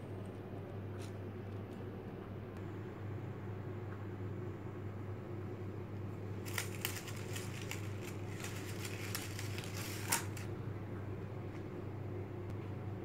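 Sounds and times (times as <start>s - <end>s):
steady low hum: 0.0s - 13.0s
paper candy cups crinkling: 6.4s - 10.5s.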